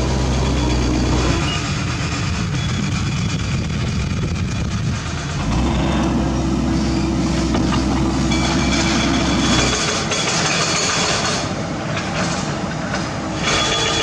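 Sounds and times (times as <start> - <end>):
excavator engine working: 0.0 - 14.0
heavy diesel machinery running: 0.0 - 14.0.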